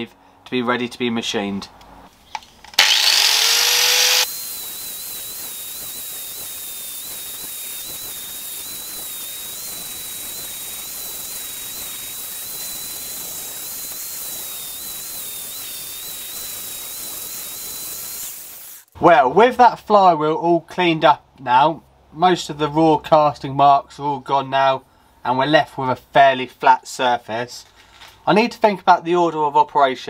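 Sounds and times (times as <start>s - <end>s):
angle grinder grinding metal: 2.7s - 19.0s.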